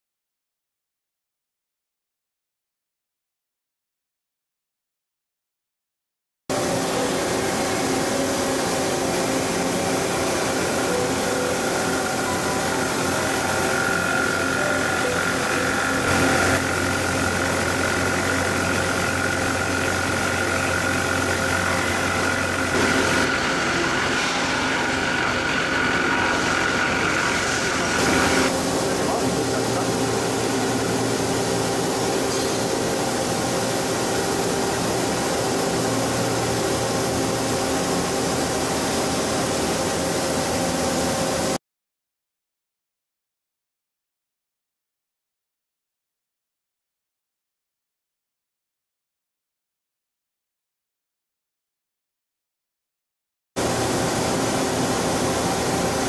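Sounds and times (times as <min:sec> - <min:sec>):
metal cutting noise: 0:06.5 - 0:41.5
milling machine hum: 0:06.5 - 0:41.6, 0:53.6 - 0:56.0.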